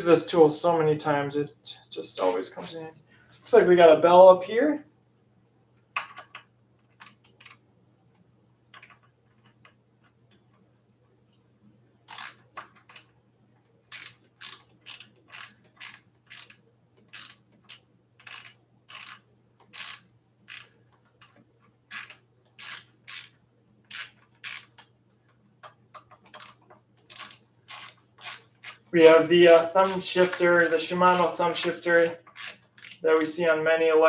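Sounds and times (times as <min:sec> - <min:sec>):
ratchet wrench clicking: 0:12.1 - 0:13.1, 0:13.9 - 0:21.3, 0:21.9 - 0:24.9, 0:26.0 - 0:28.9, 0:32.3 - 0:33.4.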